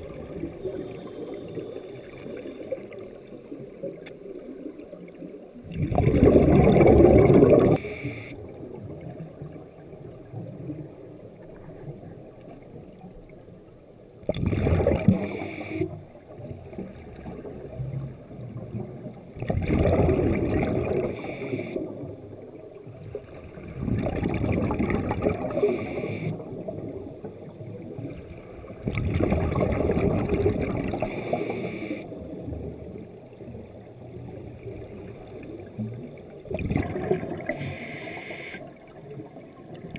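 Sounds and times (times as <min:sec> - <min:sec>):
underwater exhalation bubbles: 0:05.6 - 0:08.2, 0:14.2 - 0:16.0, 0:19.4 - 0:21.3, 0:23.6 - 0:26.5, 0:28.8 - 0:31.8, 0:36.5 - 0:37.9.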